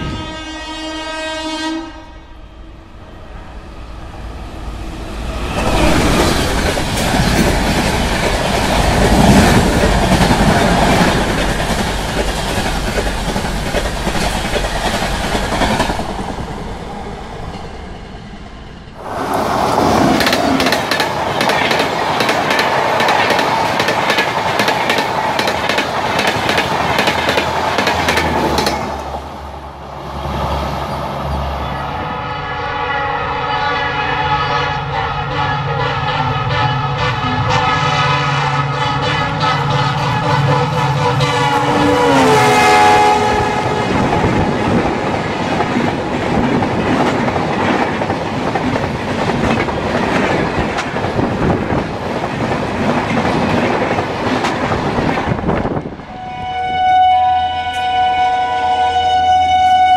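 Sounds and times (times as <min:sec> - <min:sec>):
train horn: 0:00.0 - 0:03.1, 0:31.7 - 0:44.5, 0:56.0 - 0:59.9
train wheels clattering on rails: 0:06.2 - 0:16.4, 0:19.2 - 0:29.2, 0:43.9 - 0:55.8.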